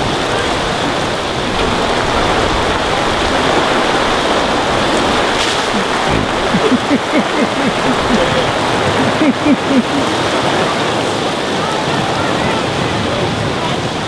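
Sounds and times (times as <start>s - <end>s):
heavy rain pouring: 0.0s - 14.0s.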